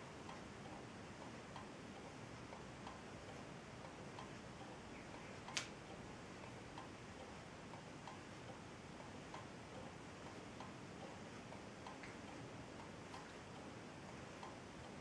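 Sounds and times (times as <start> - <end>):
sharp click: 5.4 - 5.8.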